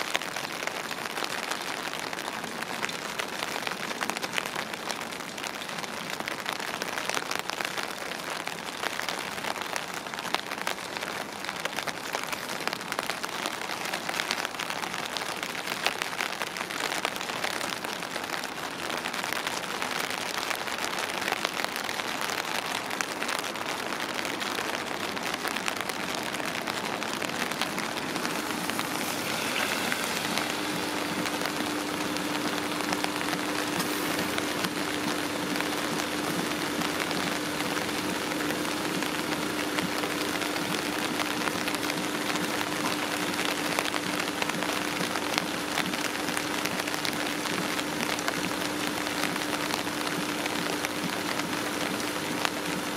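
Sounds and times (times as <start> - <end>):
rain on hard surfaces: 0.0 - 52.9
low hum: 26.6 - 51.8.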